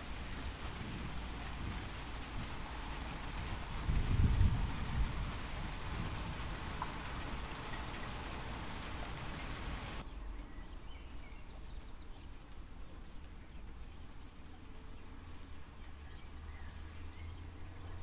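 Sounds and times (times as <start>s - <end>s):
rain hissing: 0.0s - 10.1s
low wind rumble: 0.0s - 18.0s.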